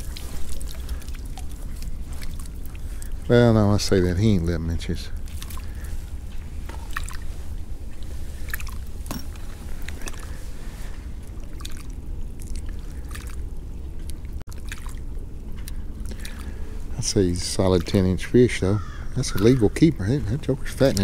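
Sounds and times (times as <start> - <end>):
steady low rumble: 0.0 - 21.0
wet squishing of fish: 0.0 - 21.0.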